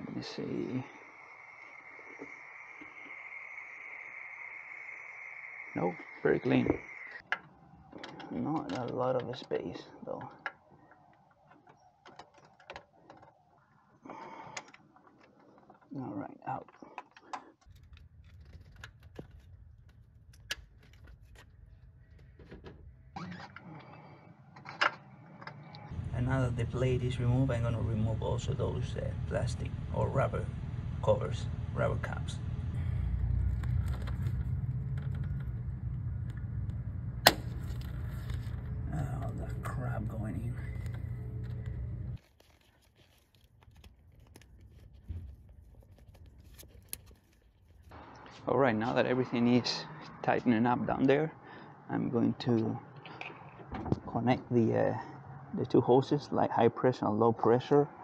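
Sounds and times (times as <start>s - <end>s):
low steady hum: 17.7s - 42.2s.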